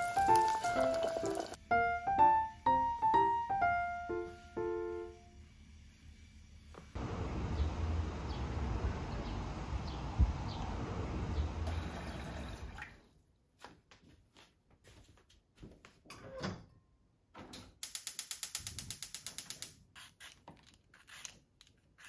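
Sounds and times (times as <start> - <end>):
water pouring into pot: 0.0 - 1.6, 11.6 - 13.0
wind noise: 8.5 - 11.6
peeler scraping carrot: 20.0 - 22.0.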